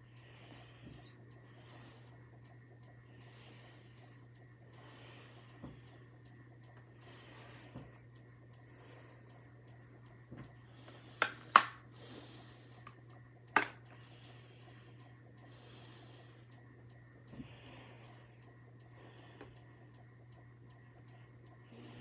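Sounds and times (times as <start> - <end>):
steady low hum: 0.0 - 22.0
sharp clicks: 10.0 - 12.0
person breathing through nose: 10.7 - 12.9.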